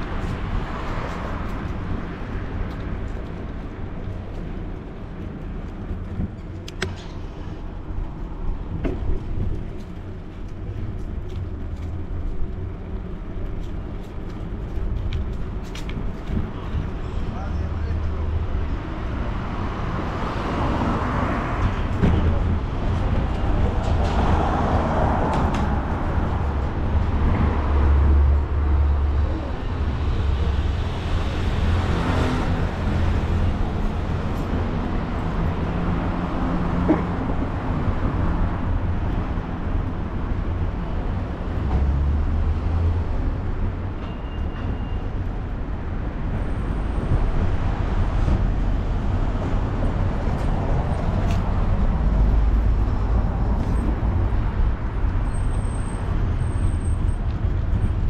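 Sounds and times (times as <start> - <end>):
bicycle rolling noise: 0.0 - 17.0
traffic passing: 0.0 - 58.0.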